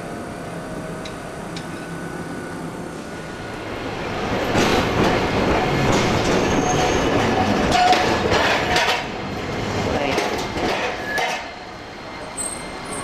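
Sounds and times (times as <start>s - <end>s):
tram wheels clacking over track: 4.1s - 13.0s.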